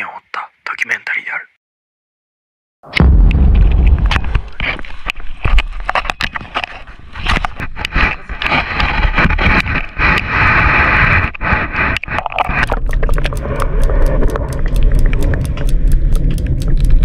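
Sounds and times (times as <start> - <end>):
rushing noise: 3.0 - 6.3.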